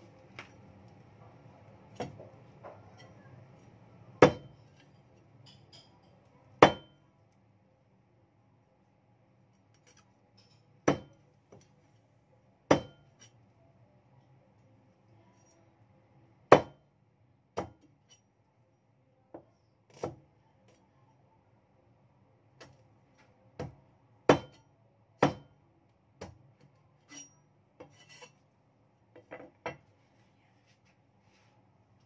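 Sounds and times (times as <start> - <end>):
cleaver chopping on wooden block: 16.5 - 16.8, 25.2 - 25.5.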